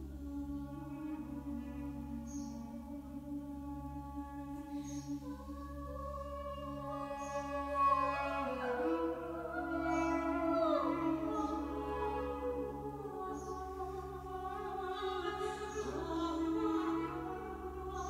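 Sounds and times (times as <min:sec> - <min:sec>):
slow singing voice: 0:13.2 - 0:18.0.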